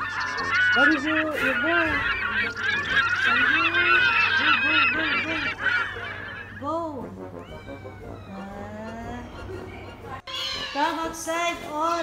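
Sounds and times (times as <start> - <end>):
chorus of animal calls: 0.0 - 6.7
cat meowing: 7.4 - 8.5.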